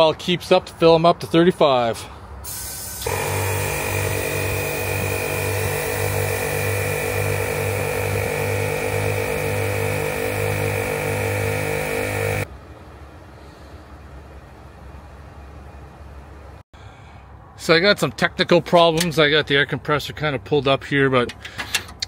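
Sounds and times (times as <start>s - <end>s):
air compressor pulsing hum: 2.4s - 12.5s.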